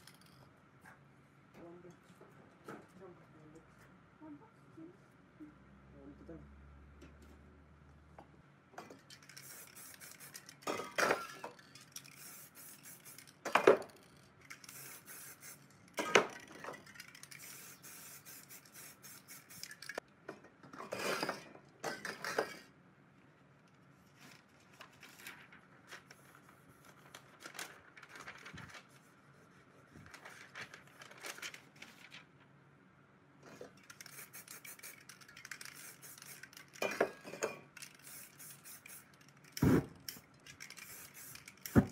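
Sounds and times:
spray can hissing: 9.2s - 10.6s, 11.9s - 13.4s, 14.5s - 15.7s, 17.0s - 20.0s, 33.9s - 36.9s, 37.8s - 41.9s.

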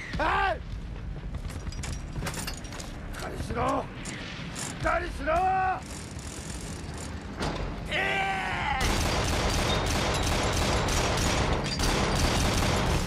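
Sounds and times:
person shouting a cry: 7.9s - 8.9s
rapid anti-aircraft gunfire: 8.8s - 13.0s.

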